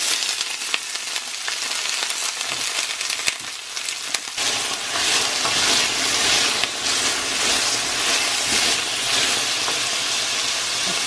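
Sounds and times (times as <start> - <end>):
vegetables sizzling in oil: 0.0 - 11.0
spatula scraping pan: 4.4 - 11.0.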